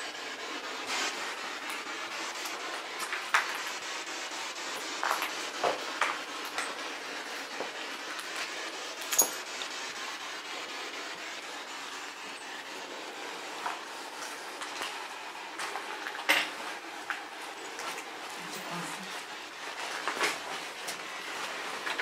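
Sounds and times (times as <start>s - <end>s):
steady hiss: 0.0s - 22.0s
footsteps on cellar floor: 4.8s - 6.8s, 7.4s - 8.5s.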